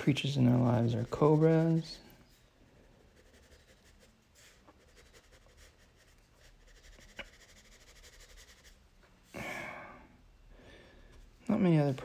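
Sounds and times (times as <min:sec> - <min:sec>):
crayon scratching on paper: 0:00.1 - 0:02.1, 0:02.9 - 0:08.8.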